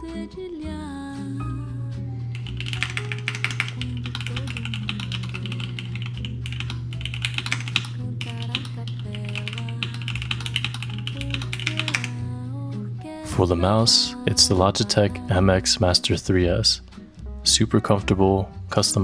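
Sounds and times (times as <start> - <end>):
background music: 0.0 - 19.0
mechanical keyboard typing: 2.4 - 12.2.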